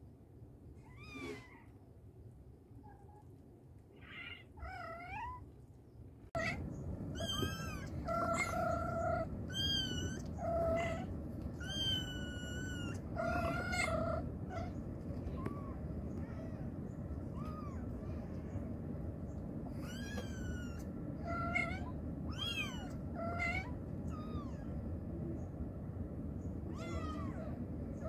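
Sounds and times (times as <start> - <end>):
high-pitched kitten mews: 0.9 - 1.7.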